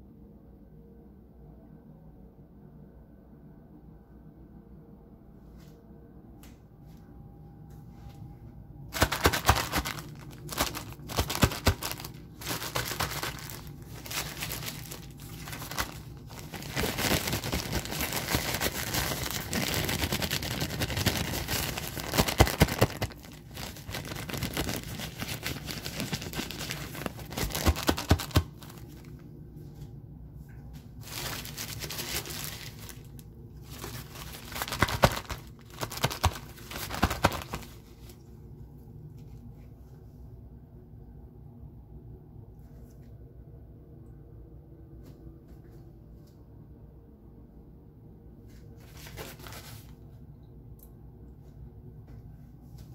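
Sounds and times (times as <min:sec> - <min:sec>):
plastic diaper crinkling: 0:08.9 - 0:29.2, 0:31.0 - 0:38.2, 0:48.8 - 0:50.0.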